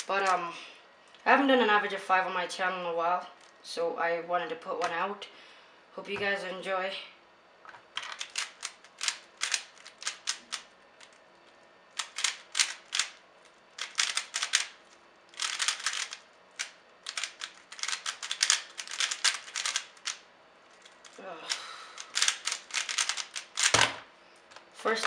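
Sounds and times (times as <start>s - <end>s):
plastic puzzle cube clicking: 8.0s - 11.1s, 12.0s - 13.2s, 13.8s - 20.2s, 22.0s - 23.8s.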